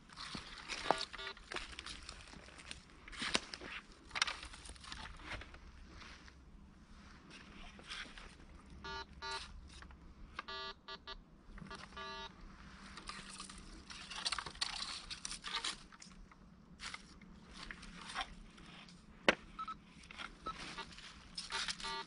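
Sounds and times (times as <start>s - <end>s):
dry leaves crunching underfoot: 0.0s - 6.3s
metal detector beeps: 0.8s - 1.4s, 8.8s - 9.5s, 10.4s - 12.3s, 19.6s - 19.8s, 20.4s - 22.0s.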